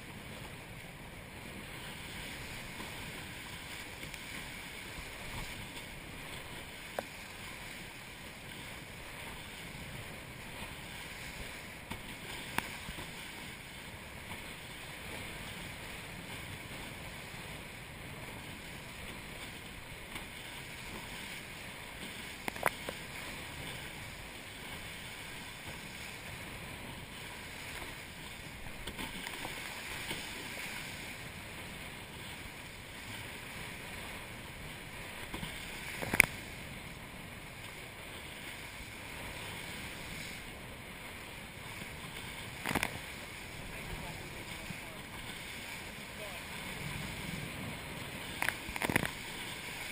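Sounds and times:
boat hull rushing through water: 0.0s - 49.9s
wind on microphone: 45.6s - 49.9s.

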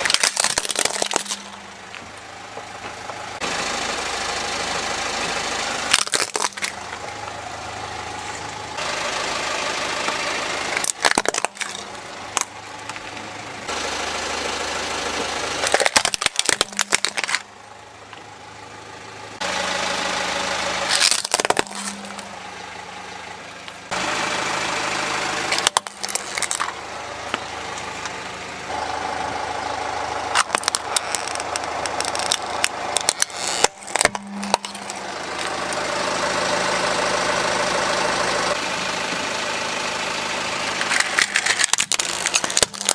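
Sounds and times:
plastic toys cracking under tyre: 0.0s - 1.6s, 5.9s - 7.0s, 10.7s - 13.2s, 15.6s - 17.5s, 20.9s - 22.2s, 25.5s - 26.8s, 30.3s - 35.6s, 40.8s - 42.9s
car engine idling: 0.0s - 42.9s.

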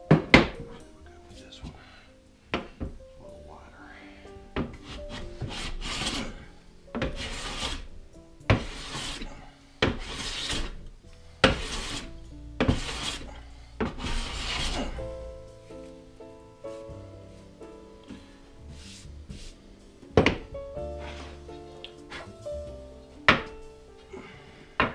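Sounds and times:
soft background music: 0.0s - 24.9s
hand plane shaving wood: 4.9s - 6.4s, 7.0s - 7.9s, 8.6s - 10.8s, 11.4s - 15.0s.

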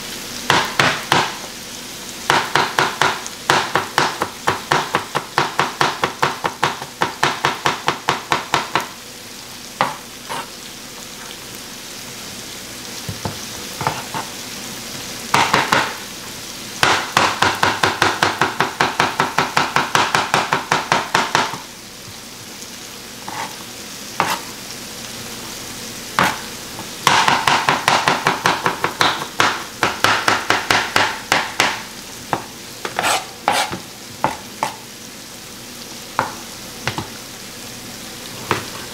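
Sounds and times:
chicken sizzling in frying pan: 0.0s - 38.9s
knife chopping on cutting board: 0.5s - 1.5s, 2.3s - 8.9s, 9.8s - 10.5s, 13.1s - 14.3s, 15.3s - 16.0s, 16.8s - 21.6s, 23.3s - 23.6s, 24.2s - 24.5s, 26.2s - 34.8s, 36.2s - 37.1s.

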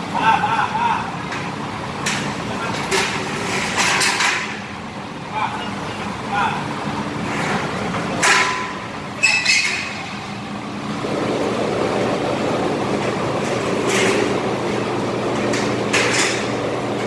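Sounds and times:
steady low hum: 0.0s - 17.0s
metal clanks and knocks: 2.0s - 4.6s, 8.2s - 10.1s.

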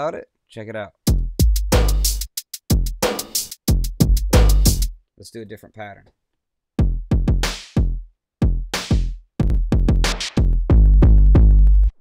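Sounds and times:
stuttering drum machine beat: 1.1s - 5.0s, 6.8s - 12.0s.

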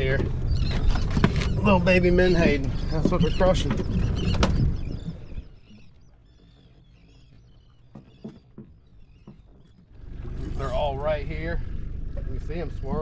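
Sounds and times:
seabirds chirping: 0.0s - 13.0s
wind rumble: 0.0s - 13.0s.

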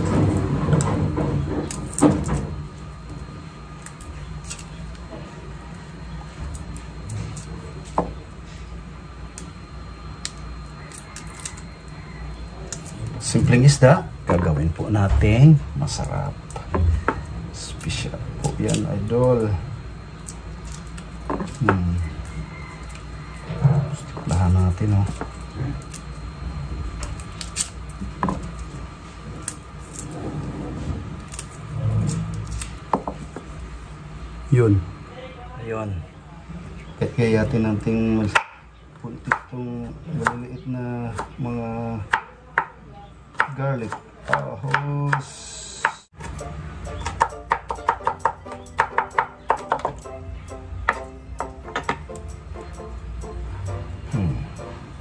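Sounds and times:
steady low hum: 0.0s - 55.0s
garlic skin crackling: 3.8s - 8.0s, 10.2s - 11.9s, 12.5s - 14.9s, 15.8s - 19.5s, 20.1s - 23.5s, 26.9s - 30.1s, 31.2s - 32.9s.

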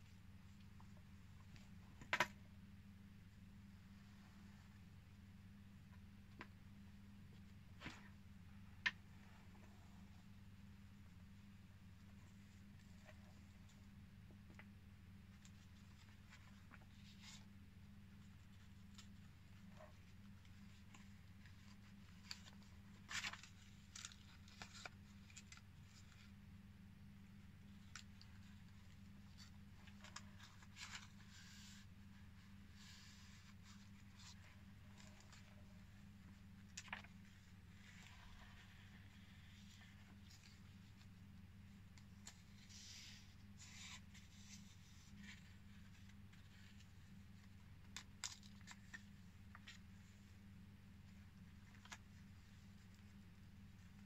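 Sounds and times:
low steady hum: 0.0s - 54.0s
paper pages rustling: 18.2s - 26.3s, 27.7s - 50.2s.

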